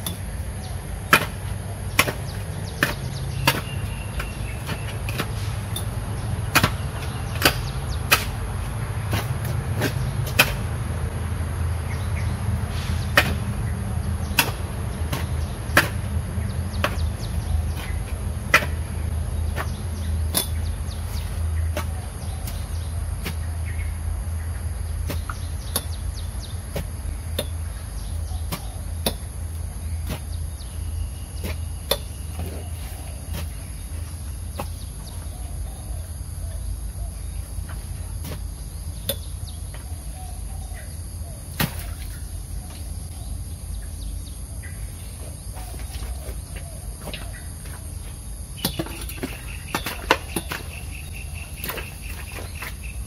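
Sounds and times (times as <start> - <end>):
hoe striking earth: 1.0 - 10.8, 12.8 - 23.8, 25.0 - 34.9, 37.6 - 39.9, 48.6 - 53.0.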